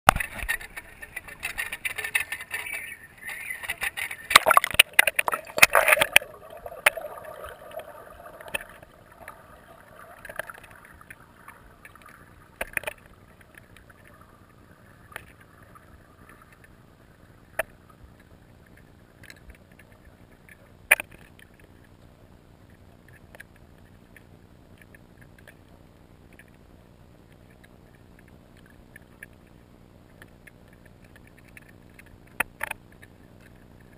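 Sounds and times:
water splashing: 0.1 - 18.1
muffled underwater hush: 0.5 - 18.9
sharp clicks and knocks: 3.6 - 7.1, 10.2 - 14.1.

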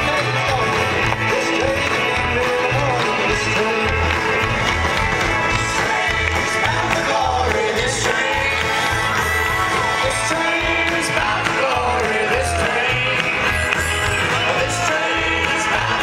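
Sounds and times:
live folk-rock band: 0.0 - 16.0
voices singing: 5.3 - 16.0.

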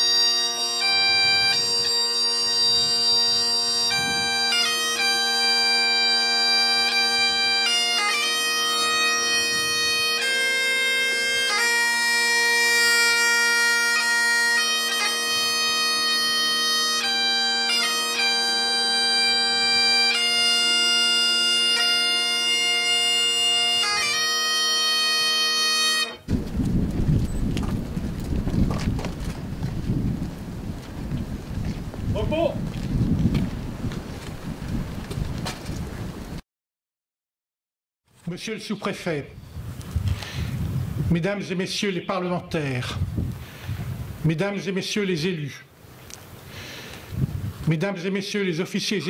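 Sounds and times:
bagpipe playing slow tune: 0.0 - 26.3.

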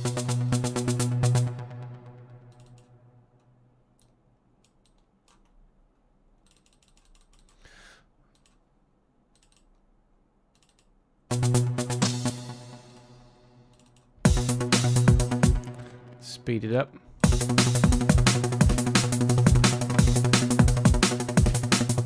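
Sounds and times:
electronic drum pattern: 0.0 - 2.7, 11.3 - 13.3, 14.2 - 16.2, 17.2 - 22.0
soft computer clicks: 2.5 - 5.6, 6.4 - 7.6, 8.3 - 8.6, 9.3 - 9.9, 10.5 - 11.0, 13.7 - 14.1.

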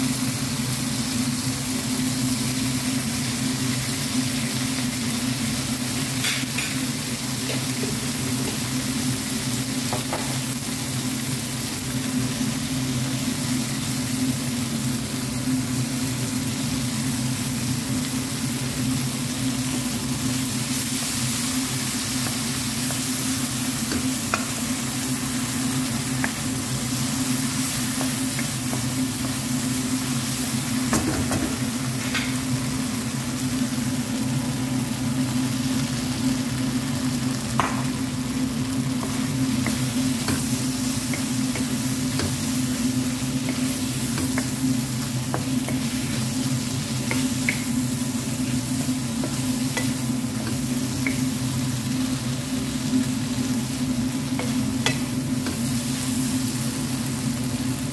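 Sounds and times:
food sizzling in a wok: 0.0 - 57.9.

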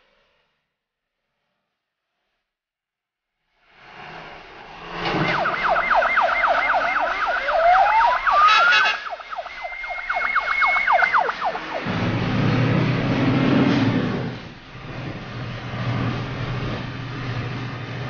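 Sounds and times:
siren wail: 4.9 - 14.4
siren yelp: 5.1 - 12.8
horn blast: 6.4 - 14.5.

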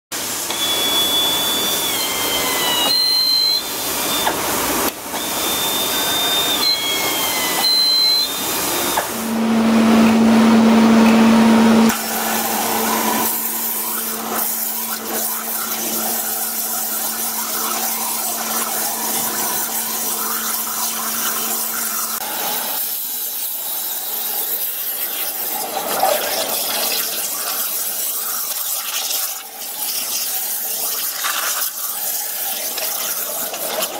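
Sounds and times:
machine and spray hiss: 0.2 - 33.9
machine whine gliding up and down: 0.4 - 22.8
steady machine hum: 0.5 - 22.8.

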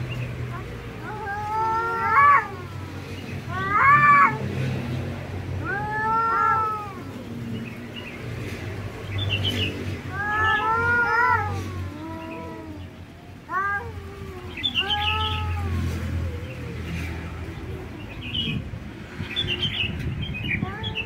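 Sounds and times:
cats yowling: 0.5 - 4.6, 5.6 - 7.5, 10.1 - 18.8.

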